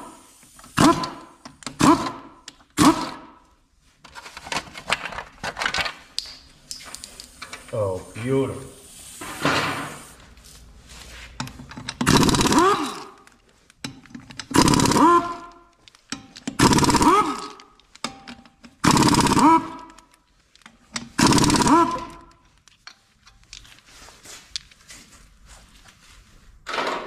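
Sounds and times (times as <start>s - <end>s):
impact wrench whining: 0.0s - 3.3s, 11.6s - 20.2s, 20.9s - 22.4s.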